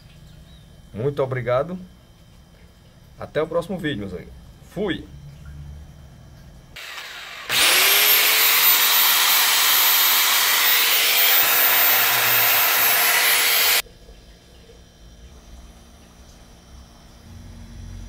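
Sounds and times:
saw motor whining: 0:06.8 - 0:13.8.

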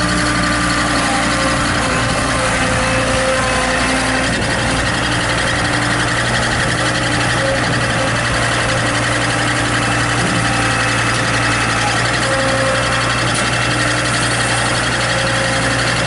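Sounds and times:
skid steer engine running: 0:00.0 - 0:16.0.

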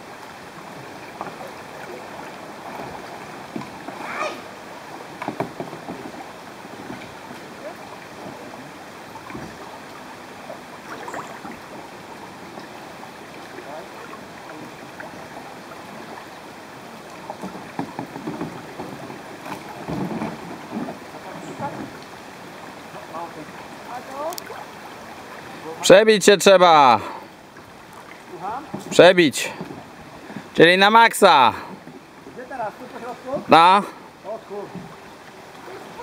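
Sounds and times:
river current gurgling: 0:00.0 - 0:36.0
knocks and splashes: 0:01.1 - 0:09.8, 0:10.5 - 0:12.7, 0:17.1 - 0:22.2, 0:27.8 - 0:30.6.

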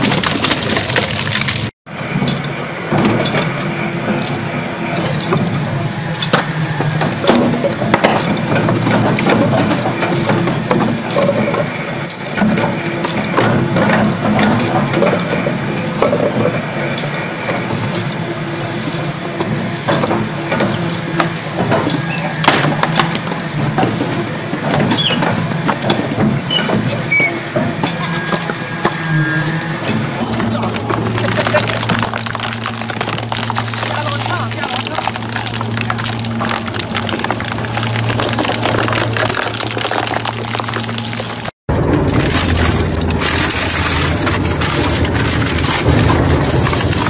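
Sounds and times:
shredder crunching block: 0:00.0 - 0:01.7, 0:30.2 - 0:47.0.

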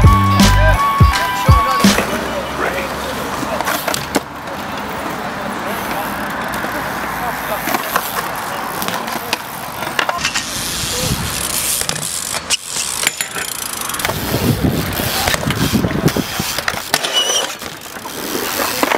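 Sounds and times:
tyres rolling on concrete: 0:00.6 - 0:18.9
bike frames knocking and clicking: 0:11.3 - 0:18.9.

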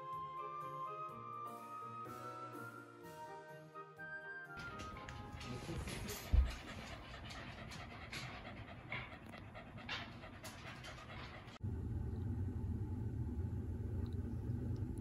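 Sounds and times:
dog panting: 0:04.6 - 0:11.6
steady low rumble: 0:06.5 - 0:15.0.

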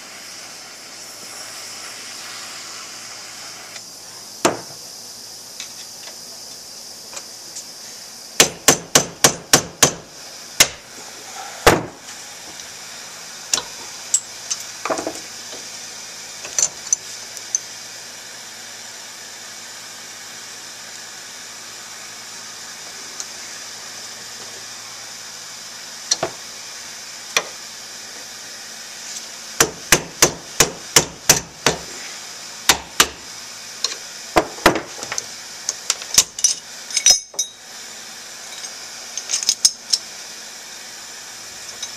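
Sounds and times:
hammer striking metal punch: 0:08.4 - 0:10.0.

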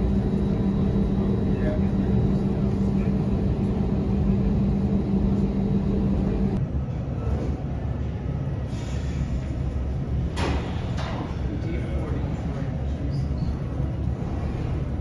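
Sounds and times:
steady cabin hum: 0:00.0 - 0:08.5
aircraft cabin low rumble: 0:00.0 - 0:08.6.

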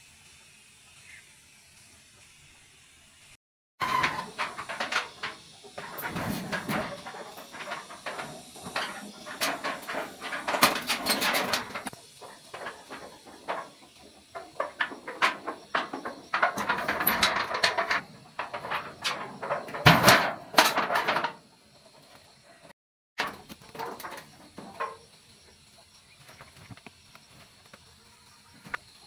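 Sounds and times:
metal roofing sheets rattling: 0:03.8 - 0:25.1.

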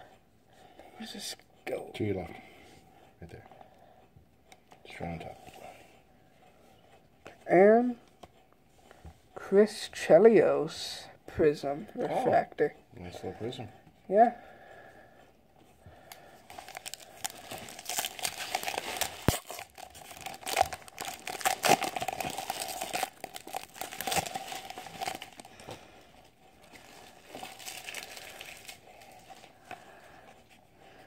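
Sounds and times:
cards crinkling: 0:16.1 - 0:30.1
plastic wrapper tearing and crackling: 0:16.4 - 0:25.8, 0:26.6 - 0:29.5.

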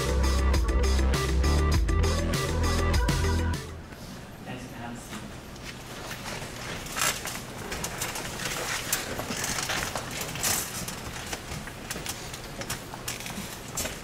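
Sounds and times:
people rustling and shuffling: 0:03.8 - 0:14.0
chairs scraping: 0:05.0 - 0:14.0.

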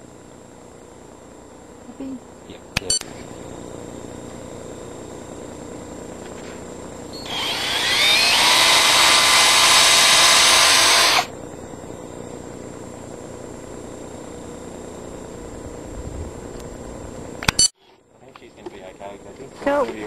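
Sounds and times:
cordless drill whining: 0:07.2 - 0:11.3.

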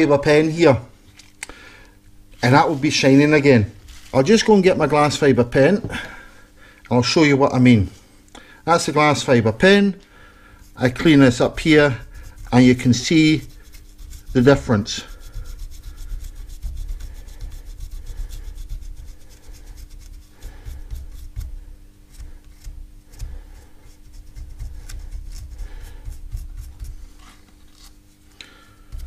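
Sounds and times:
scratchy rubbing on metal: 0:10.6 - 0:29.0.

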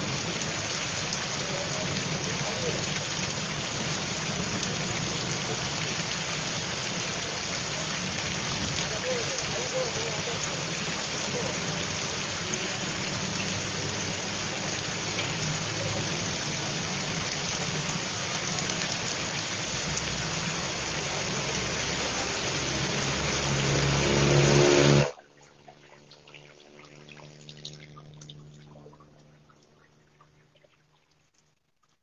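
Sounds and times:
heavy rain on wet road: 0:00.0 - 0:25.1
bus engine approaching: 0:20.8 - 0:25.1.

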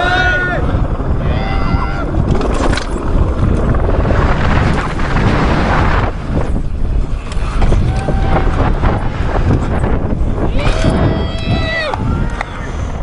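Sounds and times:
wind buffeting microphone: 0:00.0 - 0:13.0
bike tyres skidding on gravel: 0:02.0 - 0:10.4.

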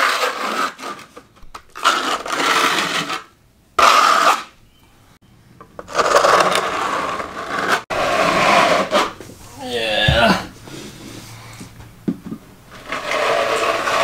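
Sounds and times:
trowel scraping across floor: 0:00.0 - 0:01.2, 0:01.8 - 0:04.5, 0:05.9 - 0:09.5, 0:12.7 - 0:14.0.

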